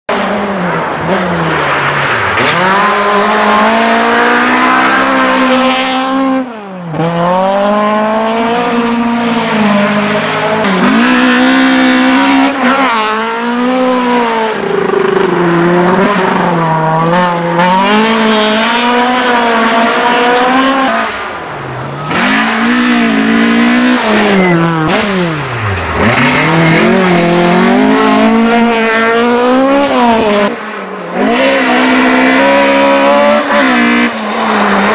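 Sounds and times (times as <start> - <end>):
rally car engine revving: 0.1 - 34.9.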